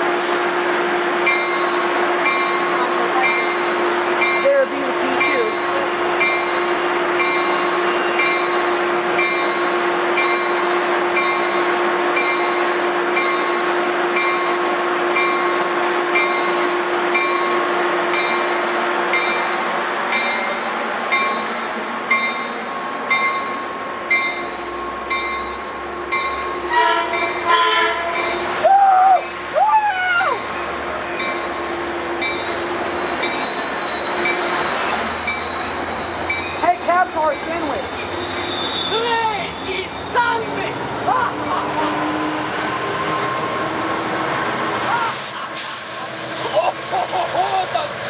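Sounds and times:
train passing drone: 0.0s - 48.0s
train bell ringing: 1.2s - 28.6s, 30.3s - 41.2s, 42.8s - 44.0s
train horn tones: 26.6s - 28.4s, 41.6s - 43.6s.

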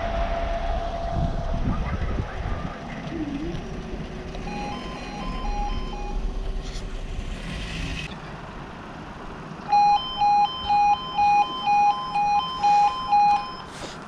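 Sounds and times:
low rumble: 0.0s - 9.5s
two-tone level crossing alarm: 4.4s - 6.3s, 9.7s - 13.7s.

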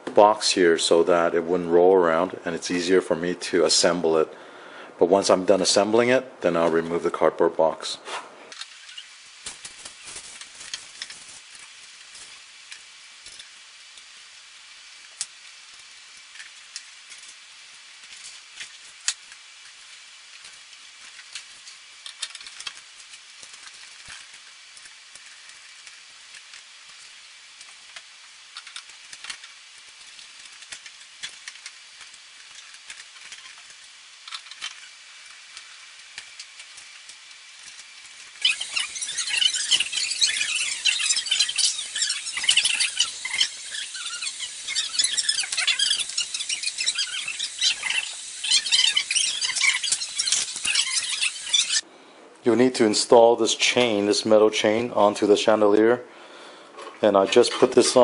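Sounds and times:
steady faint hiss: 0.0s - 58.0s
small clicks and taps of metal parts: 20.3s - 27.0s, 27.6s - 35.6s.

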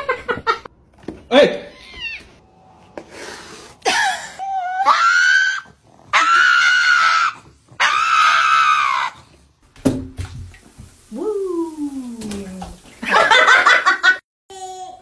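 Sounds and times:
dog howling: 4.4s - 9.2s.

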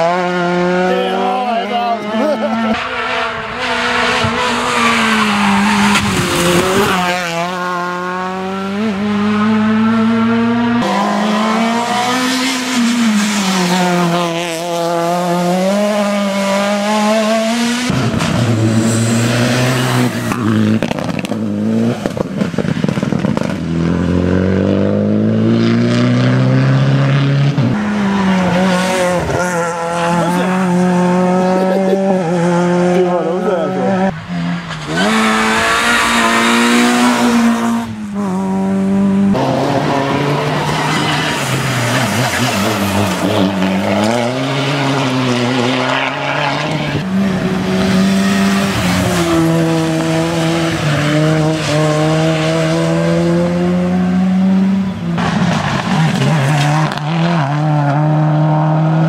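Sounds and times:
rally car engines revving: 0.0s - 59.0s.

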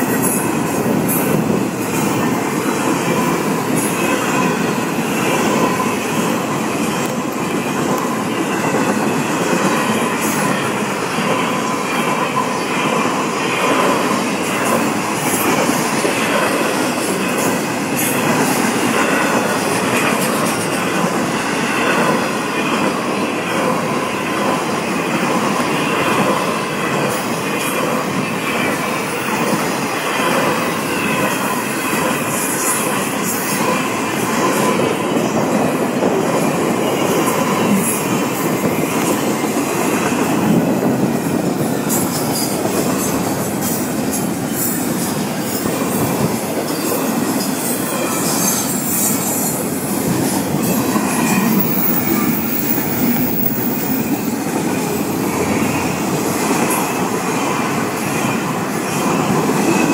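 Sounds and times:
rumble of train wheels on rail: 0.0s - 59.9s.

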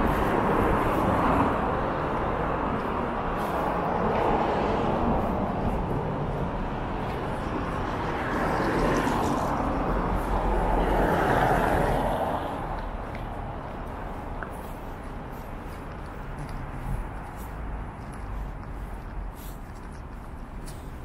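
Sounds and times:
vehicle passing: 0.0s - 21.0s.

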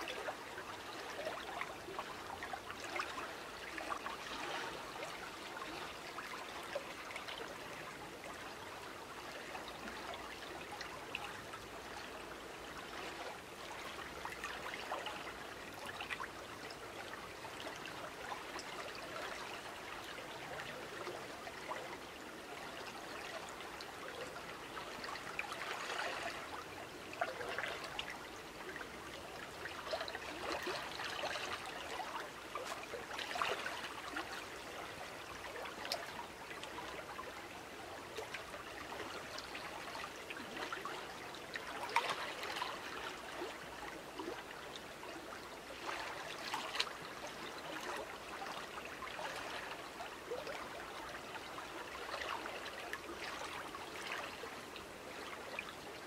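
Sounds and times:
small splashes and gurgles: 45.1s - 50.8s.

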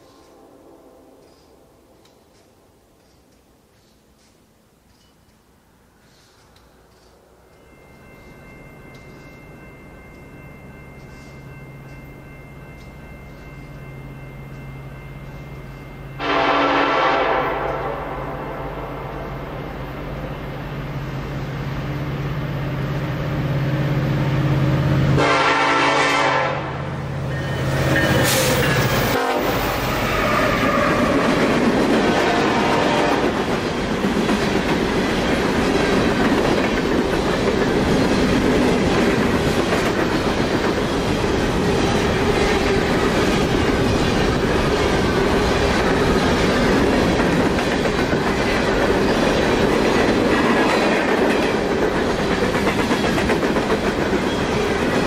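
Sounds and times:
train horn blast: 0.1s - 1.8s, 16.2s - 19.5s, 25.1s - 27.0s, 28.2s - 31.2s, 32.0s - 33.4s
diesel locomotive engine drone: 5.7s - 55.0s.

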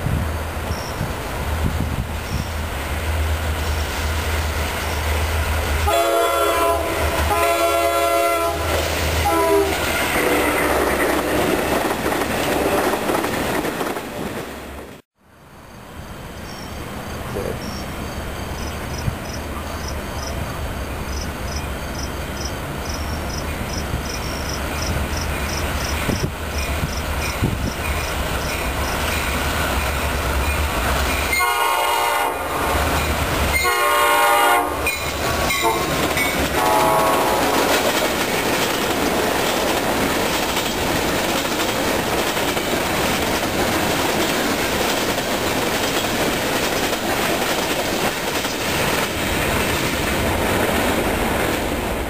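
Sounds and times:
train horn blasts: 5.8s - 11.4s, 31.3s - 32.9s, 33.5s - 37.8s
train wheels clattering on rails: 8.6s - 15.0s, 34.8s - 52.0s.

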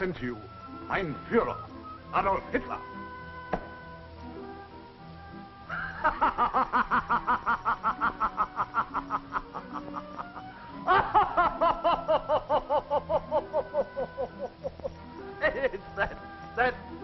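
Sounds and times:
person laughing hard: 5.7s - 16.2s.

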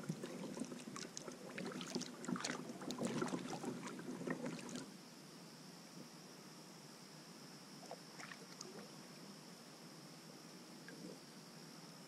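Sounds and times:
paddles splashing in water: 0.0s - 4.9s.

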